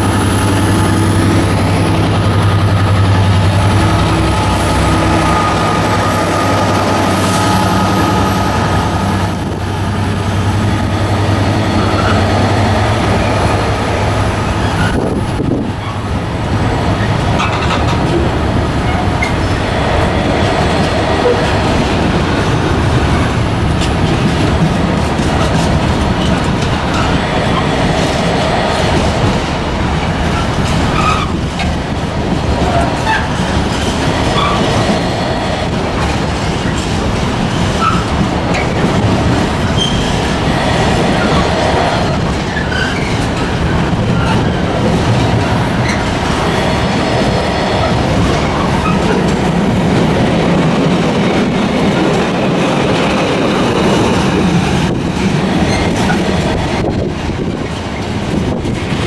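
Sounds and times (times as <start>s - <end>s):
train wheels clattering on rails: 0.0s - 59.0s.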